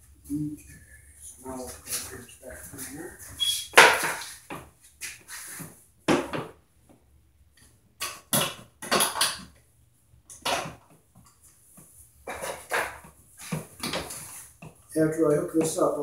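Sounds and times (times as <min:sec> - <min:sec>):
tools knocking and clattering: 0:08.0 - 0:09.6.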